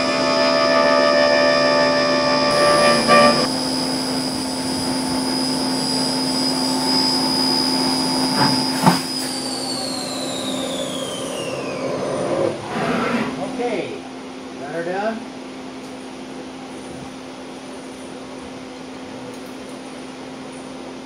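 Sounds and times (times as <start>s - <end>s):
cutting tones: 0.0s - 13.0s
milling machine spindle whine: 0.0s - 13.6s.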